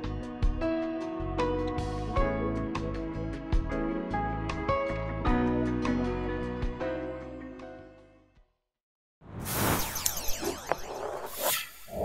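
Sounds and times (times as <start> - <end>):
rising whoosh with sweeping tones: 9.3 - 12.0.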